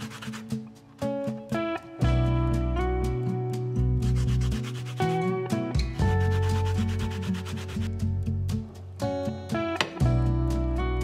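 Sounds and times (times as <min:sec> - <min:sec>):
acoustic guitar music: 0:00.0 - 0:11.0
low bass line: 0:10.0 - 0:11.0.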